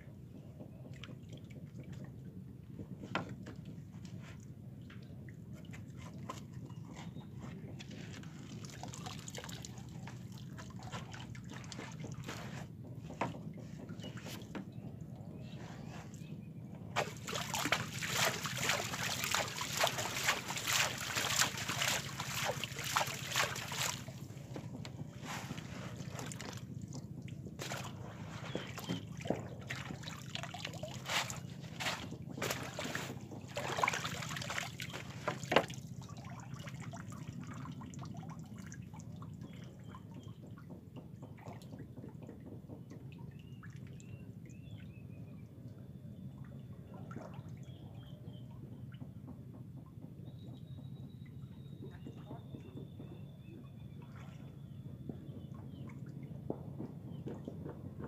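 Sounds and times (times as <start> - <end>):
pond water splashing and trickling: 0.6 - 48.1, 54.0 - 54.7
water dripping: 17.0 - 24.2.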